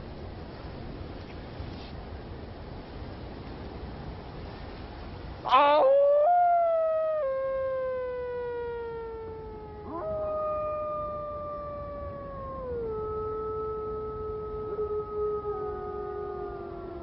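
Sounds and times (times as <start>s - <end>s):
wolves howling: 5.5s - 17.0s.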